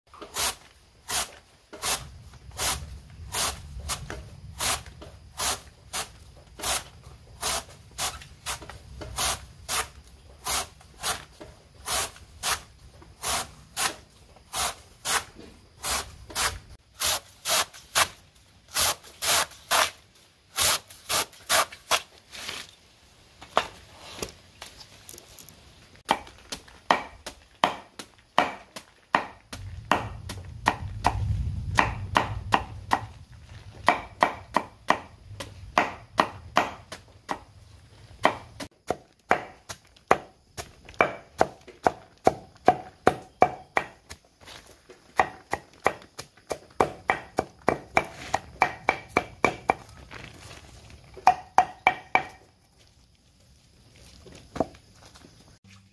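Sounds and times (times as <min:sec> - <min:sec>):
machete slicing banana stem: 0:04.6 - 0:22.7
chopping on wooden block: 0:26.9 - 0:31.2, 0:31.8 - 0:33.1, 0:33.8 - 0:35.1, 0:35.8 - 0:37.4, 0:38.2 - 0:40.3, 0:41.0 - 0:44.1, 0:45.2 - 0:49.8, 0:51.2 - 0:52.4.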